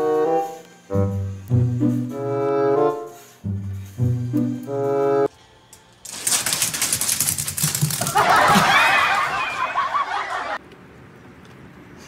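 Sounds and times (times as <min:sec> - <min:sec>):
claws scrabbling on wood floor: 0:06.0 - 0:09.2.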